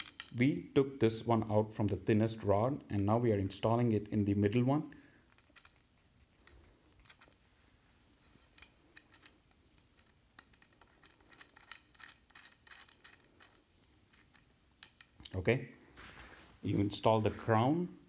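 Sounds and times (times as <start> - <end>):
screw clicking and scratching: 5.2 - 7.4, 8.4 - 15.3.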